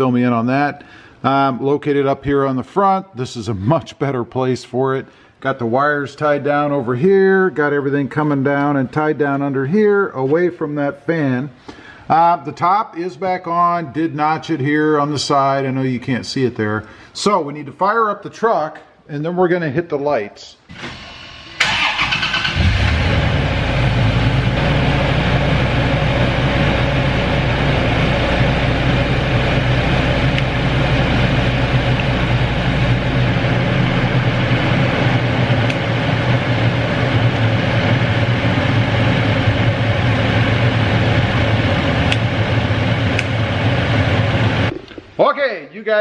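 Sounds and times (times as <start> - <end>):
truck engine starting and idling: 20.7 - 44.7.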